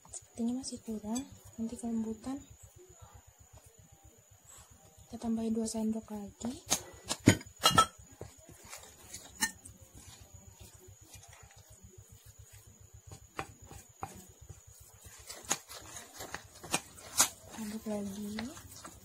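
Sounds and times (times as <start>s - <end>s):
spoon clinking against bowl: 9.3s - 9.7s.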